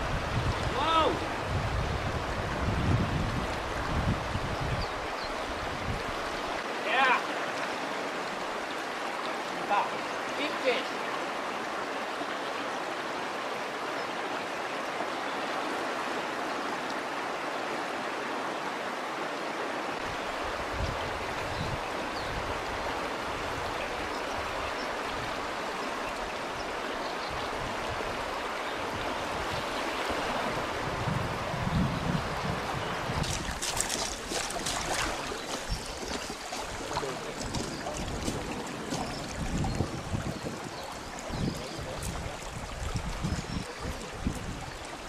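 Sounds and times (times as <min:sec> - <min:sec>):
river current rushing: 0:00.0 - 0:45.0.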